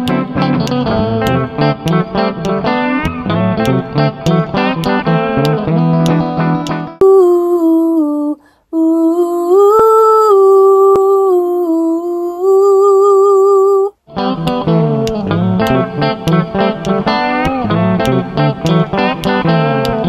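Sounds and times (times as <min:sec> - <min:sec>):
woman singing unaccompanied: 0:00.0 - 0:02.7, 0:07.0 - 0:20.0
guitar background music: 0:00.0 - 0:07.0, 0:14.1 - 0:20.0.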